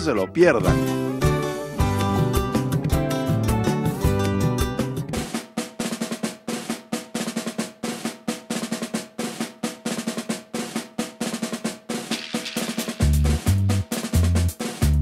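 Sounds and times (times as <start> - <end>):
fast drum pattern: 0.0 - 15.0
deep bass line: 0.2 - 5.3, 13.0 - 15.0.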